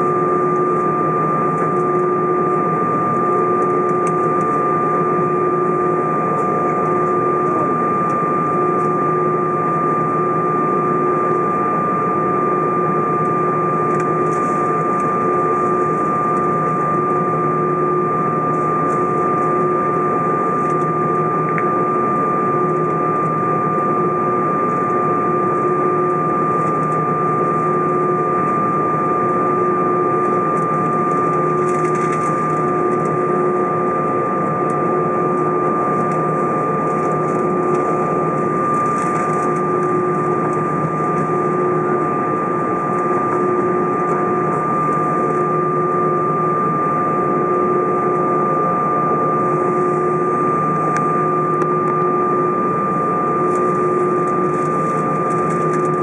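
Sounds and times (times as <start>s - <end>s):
aircraft cabin engine hum: 0.0s - 56.0s
low pulsing tone: 0.0s - 56.0s.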